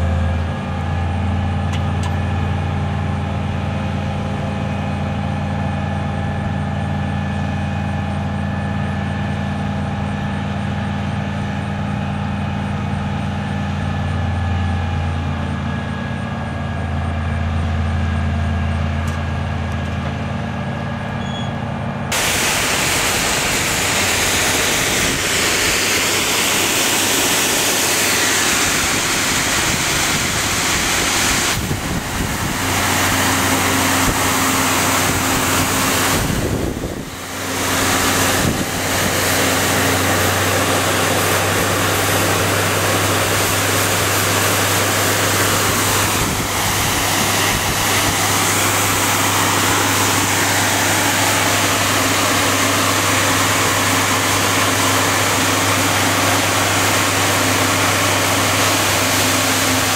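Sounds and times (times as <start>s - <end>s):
truck engine running: 0.0s - 59.9s
water stream spraying: 22.1s - 59.9s.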